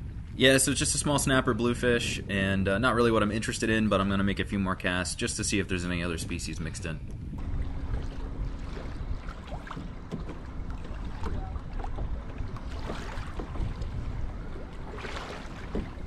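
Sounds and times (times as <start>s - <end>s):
wind buffeting microphone: 0.0s - 16.0s
water lapping against kayak hull: 7.0s - 16.0s.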